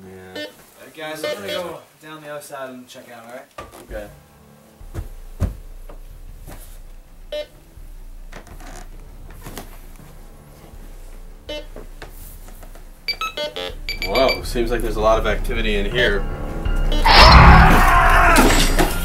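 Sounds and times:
handling knocks: 0:03.6 - 0:04.2, 0:04.8 - 0:15.3
footsteps: 0:03.6 - 0:15.5
bright electronic beeps: 0:07.2 - 0:07.9, 0:11.4 - 0:11.8, 0:13.0 - 0:14.8, 0:16.6 - 0:17.6.

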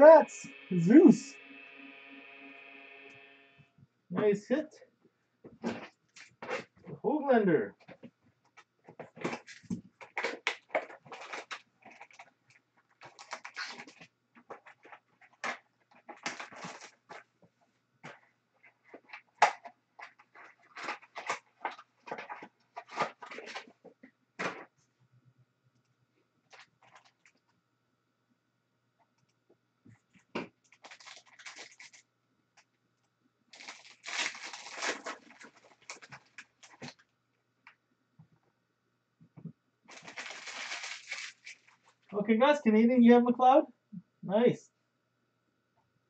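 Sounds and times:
cards and foil wrapper rustling: 0:09.0 - 0:17.2, 0:18.9 - 0:23.7, 0:30.7 - 0:32.0, 0:33.6 - 0:37.0, 0:39.9 - 0:42.1.

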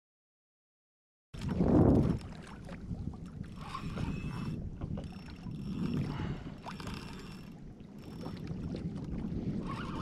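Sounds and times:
water lapping against kayak hull: 0:01.4 - 0:10.0
small knocks and ticks: 0:03.5 - 0:06.0.

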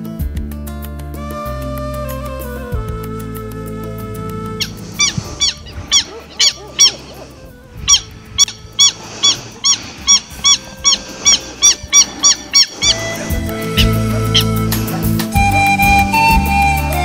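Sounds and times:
bird harsh repeated calls: 0:04.5 - 0:15.1.

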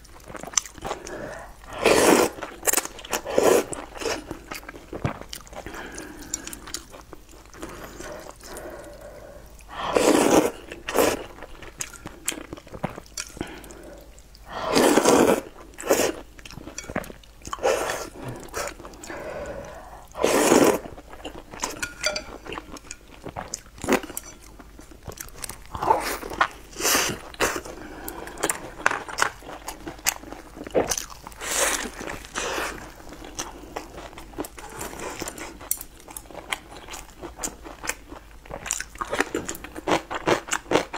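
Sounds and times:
chewing and smacking: 0:00.0 - 0:01.7, 0:10.6 - 0:14.4, 0:20.8 - 0:40.9
loud noodle slurping: 0:01.7 - 0:02.4, 0:09.7 - 0:11.2, 0:14.5 - 0:16.2, 0:17.5 - 0:20.9.

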